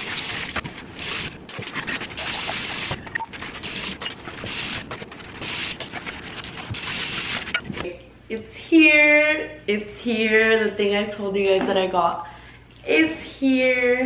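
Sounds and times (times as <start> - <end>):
running tap water: 0.0 - 3.0
sponge scrubbing: 0.0 - 7.6.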